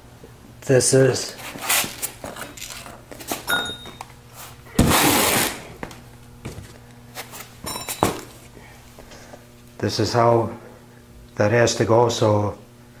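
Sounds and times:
rustling scrape on concrete: 0:01.4 - 0:03.5.

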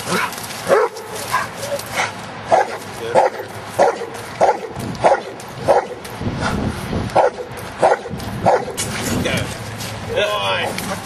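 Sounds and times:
dog barking: 0:00.1 - 0:06.0, 0:07.1 - 0:08.8.

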